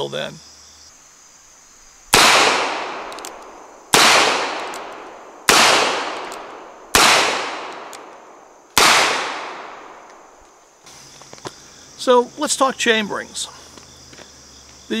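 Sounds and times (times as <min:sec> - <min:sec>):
revolver shots echoing: 0:02.1 - 0:08.2, 0:08.8 - 0:10.2.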